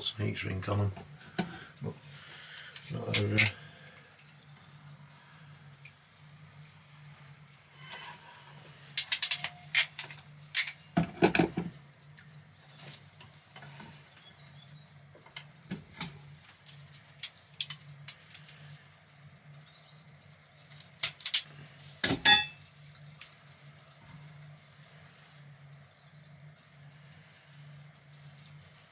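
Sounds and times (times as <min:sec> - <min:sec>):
faint low hum: 0:00.0 - 0:28.9
hand tools clicking on wires: 0:03.1 - 0:03.6, 0:09.0 - 0:10.8, 0:20.8 - 0:21.5.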